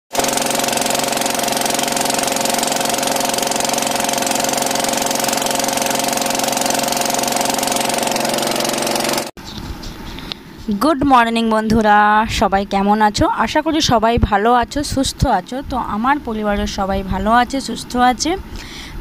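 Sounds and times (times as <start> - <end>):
boat engine running: 0.1 - 9.4.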